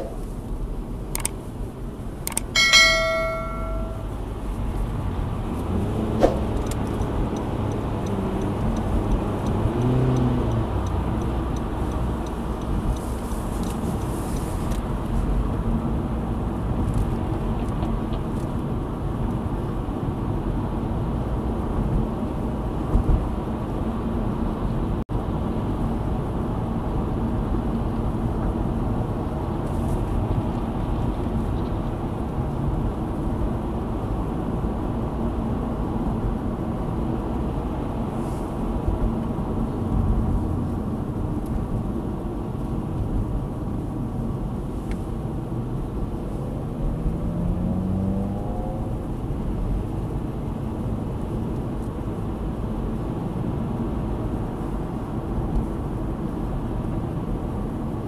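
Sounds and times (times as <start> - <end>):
car road and engine noise: 0.0 - 58.0
short thump: 6.2 - 6.5
light regular ticking: 6.6 - 14.1.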